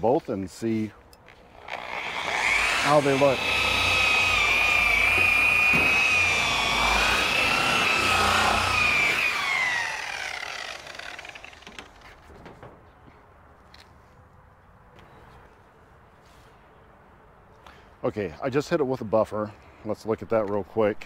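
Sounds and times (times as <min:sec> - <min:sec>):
rotary polisher whining: 0:01.5 - 0:12.0.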